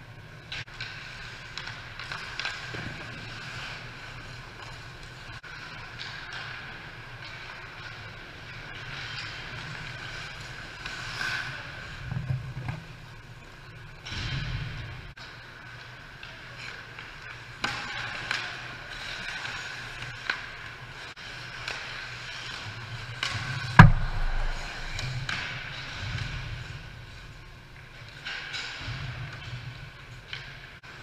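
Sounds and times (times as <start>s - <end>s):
hockey sticks clacking: 0.5s - 13.0s, 15.2s - 26.7s
skate blades scraping ice: 0.7s - 13.0s
loud sharp hit: 23.8s - 25.6s
low boom: 23.8s - 25.7s.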